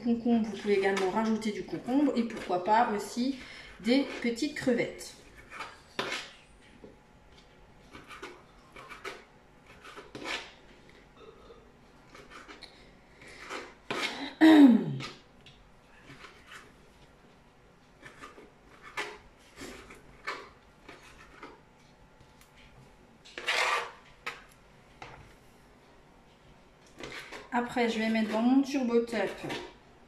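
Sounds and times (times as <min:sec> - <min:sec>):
knife scraping cutting board: 0:03.9 - 0:06.4, 0:07.8 - 0:10.6, 0:12.1 - 0:14.2, 0:16.0 - 0:16.7, 0:18.0 - 0:21.6, 0:23.3 - 0:24.5, 0:27.0 - 0:29.8.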